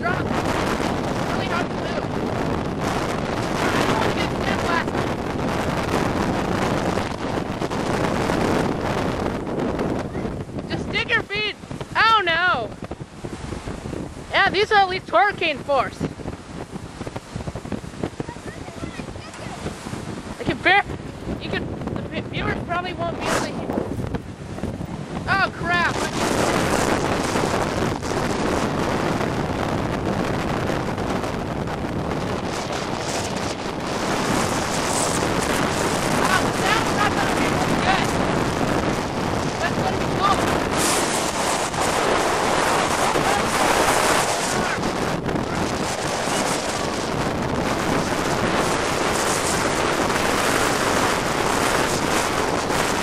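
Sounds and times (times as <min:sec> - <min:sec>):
wind buffeting microphone: 0:00.0 - 0:53.0.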